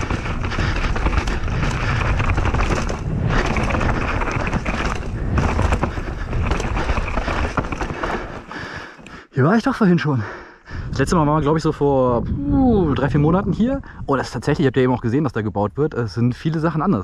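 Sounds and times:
bike rattling and clattering: 0.0s - 9.3s
tyres rumbling over dirt: 0.0s - 9.3s.

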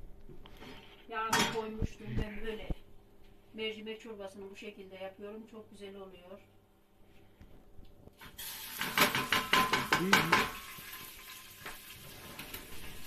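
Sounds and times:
lentils sizzling in hot oil: 8.2s - 13.0s
strainer and pot clattering: 8.7s - 11.1s.

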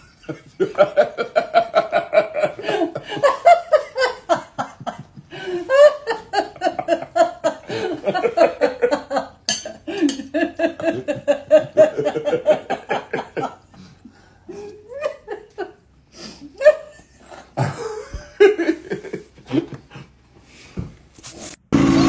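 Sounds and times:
woman laughing hard: 0.0s - 13.9s, 14.5s - 19.9s.

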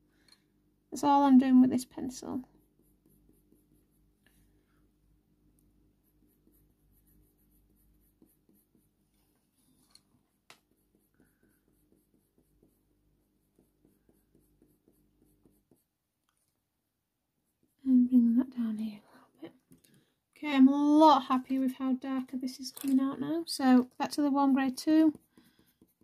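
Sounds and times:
low steady hum: 0.0s - 16.6s
pencil scratching on paper: 1.9s - 4.5s, 5.7s - 16.5s, 17.4s - 18.2s, 23.7s - 26.0s.

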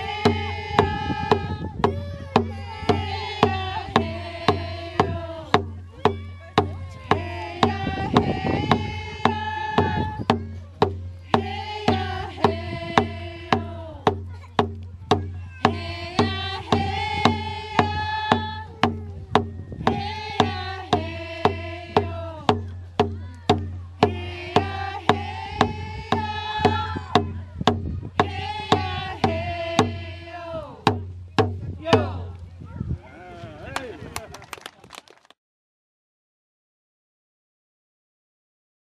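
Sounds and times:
women singing together: 0.0s - 14.3s, 15.6s - 22.7s, 24.0s - 31.0s, 31.8s - 32.3s
frame hand drums beating: 0.0s - 32.4s.

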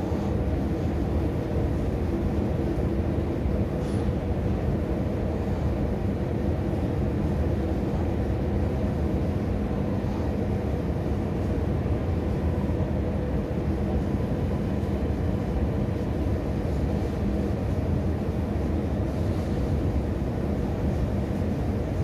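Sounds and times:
escalator rumble and hum: 0.0s - 22.0s.

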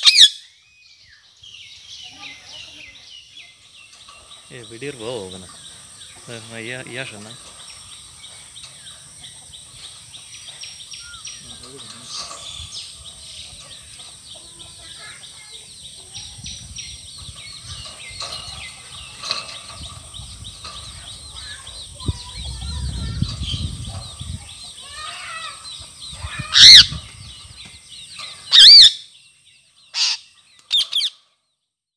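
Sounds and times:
shrill parrot calls: 0.0s - 0.5s, 26.2s - 27.0s, 28.5s - 29.0s, 29.9s - 31.1s
soft bird chirping: 0.0s - 31.6s.

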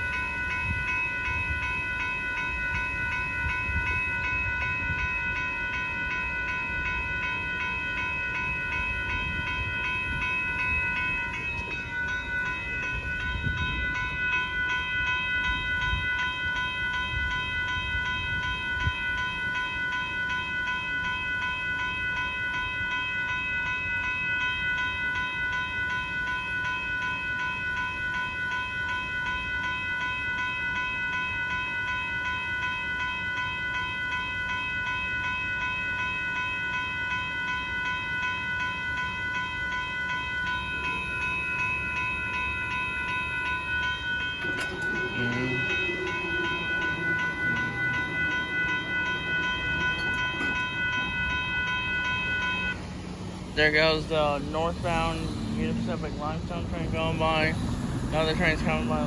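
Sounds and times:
crossing bell ringing: 0.0s - 59.0s
freight train rumbling: 0.0s - 59.0s.

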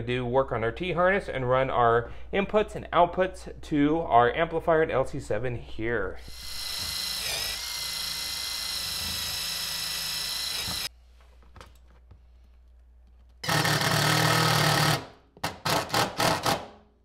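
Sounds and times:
cordless drill whining: 6.2s - 10.9s, 13.4s - 15.0s.

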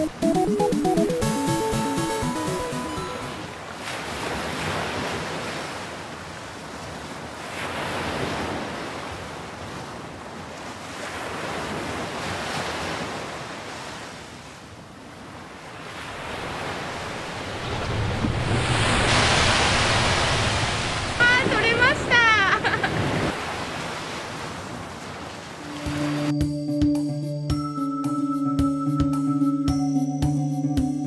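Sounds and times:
surf washing over rocks: 15.7s - 26.3s.

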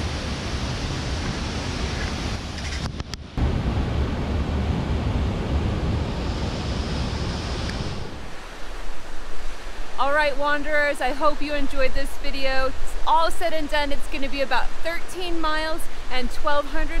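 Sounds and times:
wind rumbling on microphone: 0.0s - 17.0s
waterfall rushing into pool: 6.4s - 17.0s.

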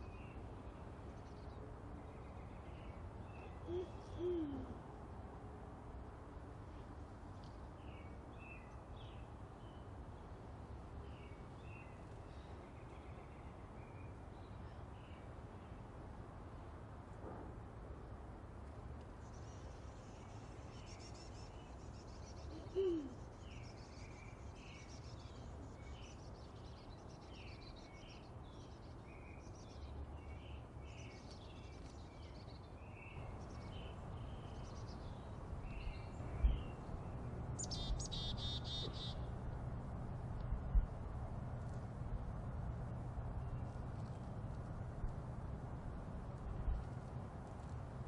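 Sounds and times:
low steady hum: 0.0s - 48.0s
chickadees chirping: 37.6s - 39.3s.

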